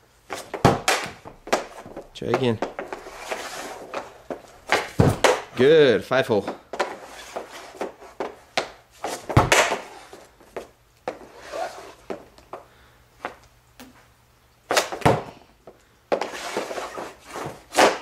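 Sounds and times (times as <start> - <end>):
hockey stick tapping puck: 0.3 - 5.6, 6.4 - 9.9, 16.1 - 18.0.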